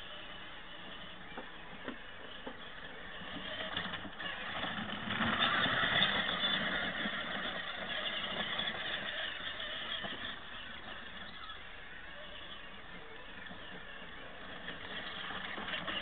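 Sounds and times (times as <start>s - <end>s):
electric toy car driving on grass: 0.0s - 16.0s.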